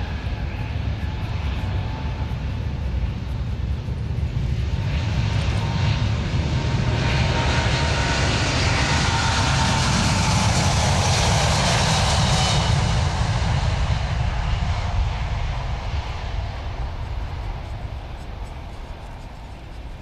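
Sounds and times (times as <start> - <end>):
faint steady whine: 0.0 - 6.8
jet engines at take-off thrust: 0.0 - 20.0.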